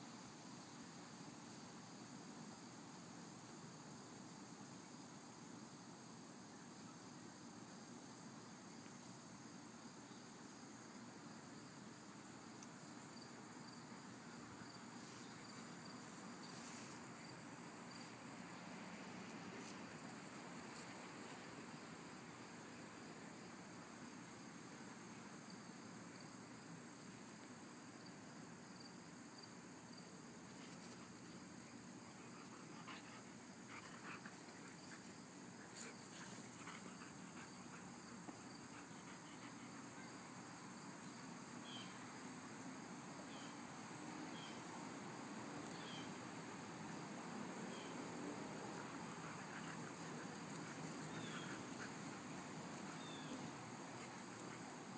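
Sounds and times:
crickets droning: 0:00.0 - 0:54.9.

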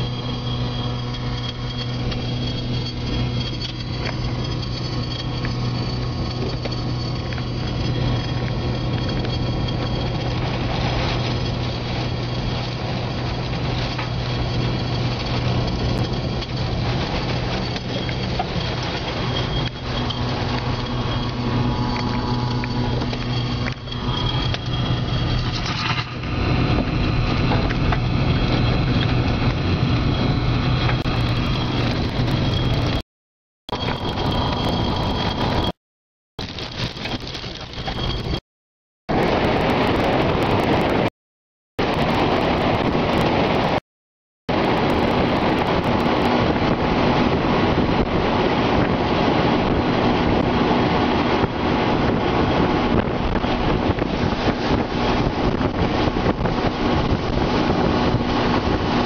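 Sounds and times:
low hum: 0:00.0 - 0:33.0, 0:33.7 - 0:35.8
wind and rain battering car: 0:00.0 - 0:33.0, 0:33.7 - 0:35.8, 0:36.4 - 0:38.4, 0:39.1 - 0:41.1, 0:41.8 - 0:43.8, 0:44.5 - 0:59.0.

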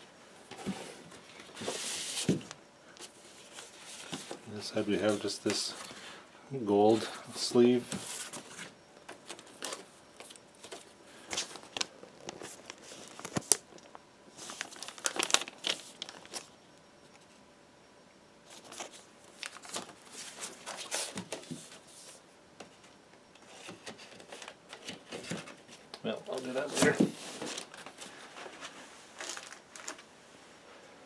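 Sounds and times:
paper sleeve rustling and crinkling: 0:00.6 - 0:06.2, 0:07.4 - 0:16.5, 0:18.5 - 0:22.2, 0:26.3 - 0:30.1.

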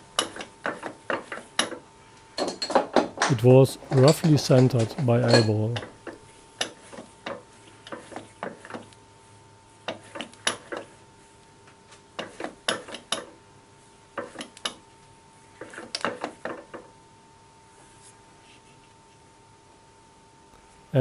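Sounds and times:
faint steady hum: 0:00.0 - 0:21.0
light metallic clicks and clinks: 0:02.4 - 0:05.9.

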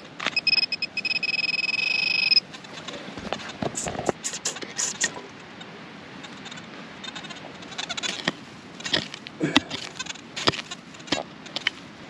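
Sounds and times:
hand digger chopping soil: 0:08.8 - 0:11.7.

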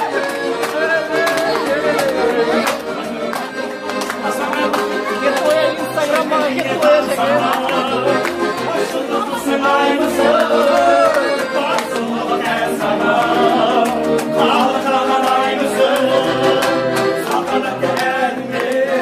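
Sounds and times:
piano accordion: 0:00.0 - 0:19.0
man singing: 0:05.4 - 0:19.0.

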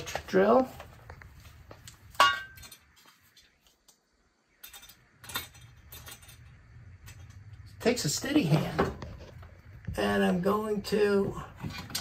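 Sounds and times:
sharp metallic clink: 0:02.2 - 0:02.8.

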